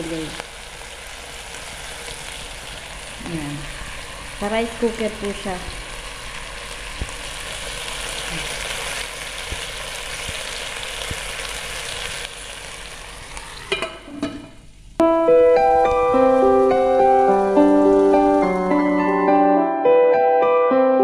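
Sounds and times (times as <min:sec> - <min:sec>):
chicken sizzling: 0:00.0 - 0:19.4
lid clatters: 0:13.7 - 0:14.6
piano music: 0:15.0 - 0:21.0.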